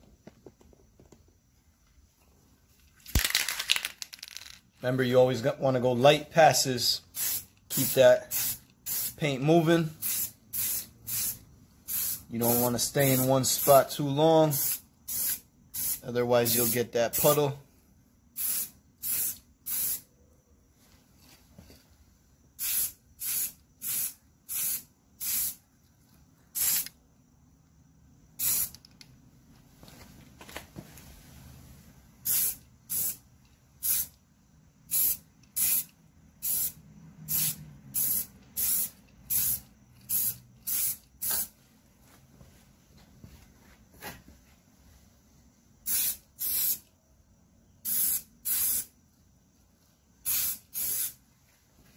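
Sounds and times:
aerosol spray can hissing: 0:07.2 - 0:09.2, 0:10.0 - 0:13.8, 0:14.5 - 0:16.0, 0:18.4 - 0:20.0, 0:22.6 - 0:25.6, 0:26.6 - 0:26.9, 0:28.4 - 0:28.8, 0:32.2 - 0:33.2, 0:33.8 - 0:34.1, 0:34.9 - 0:41.5, 0:45.8 - 0:46.8, 0:47.8 - 0:48.9, 0:50.2 - 0:51.2.

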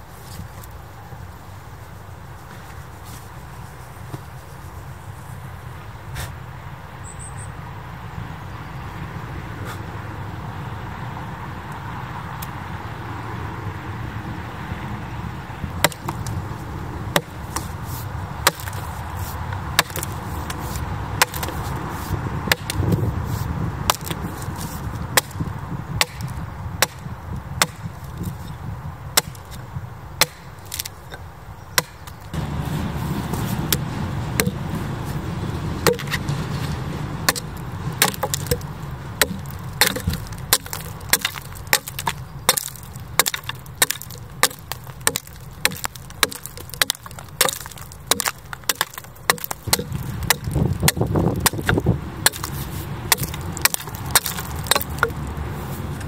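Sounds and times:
axe chopping wood: 0:15.7 - 0:16.4, 0:17.1 - 0:29.6, 0:30.2 - 0:31.2, 0:31.8 - 0:35.2, 0:35.8 - 0:36.4, 0:37.2 - 0:55.3
low rumble: 0:32.3 - 0:40.6.

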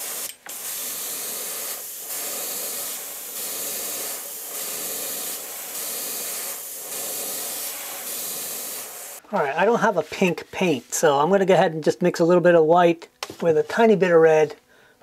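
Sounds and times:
airbrush spraying hiss: 0:00.0 - 0:09.2.

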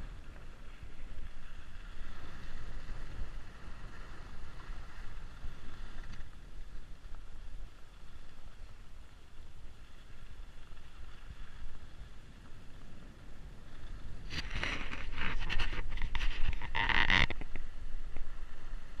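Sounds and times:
skis scraping on packed snow: 0:00.0 - 0:19.0
wind rushing over microphone: 0:11.1 - 0:19.0.

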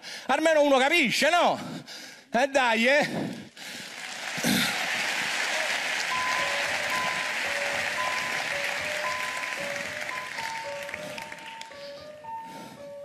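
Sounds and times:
studio audience applauding: 0:03.6 - 0:12.0.

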